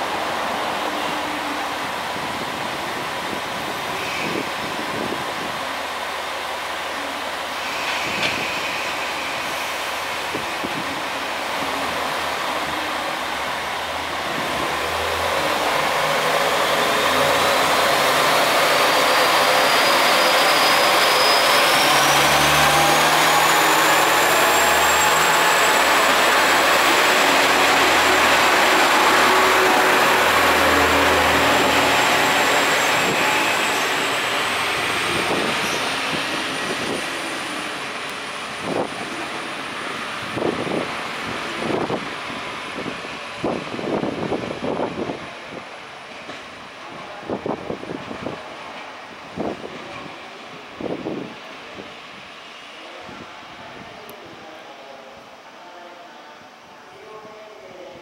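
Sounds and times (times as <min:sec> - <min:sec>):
diesel railcar engine: 0:00.0 - 0:55.5
high whine of train: 0:00.0 - 0:58.0.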